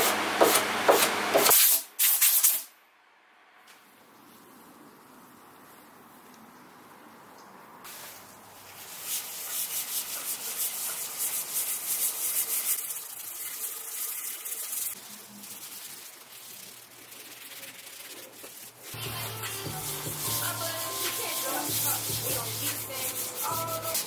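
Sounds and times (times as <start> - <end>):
cloth rag scrubbing wood: 7.9 - 12.9, 13.6 - 24.0.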